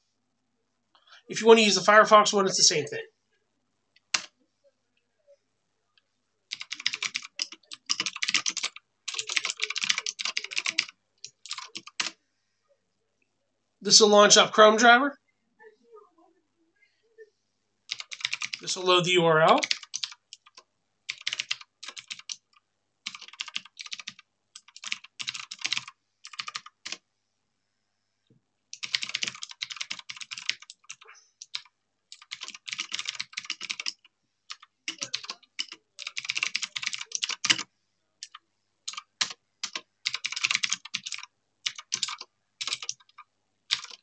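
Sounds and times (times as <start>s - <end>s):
typing on computer keyboard: 4.0s - 4.3s, 6.5s - 12.2s, 17.9s - 18.6s, 19.6s - 27.0s, 28.8s - 44.0s.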